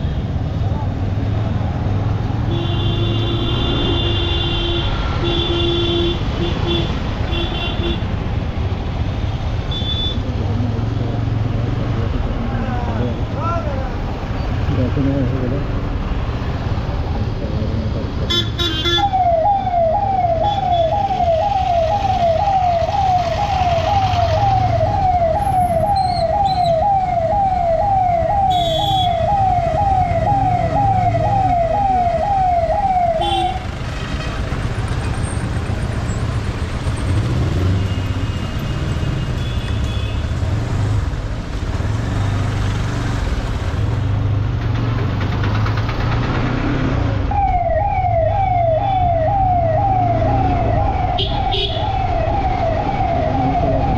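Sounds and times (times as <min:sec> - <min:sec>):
street traffic: 0:00.0 - 0:53.9
siren yelping: 0:18.9 - 0:33.6, 0:47.2 - 0:53.9.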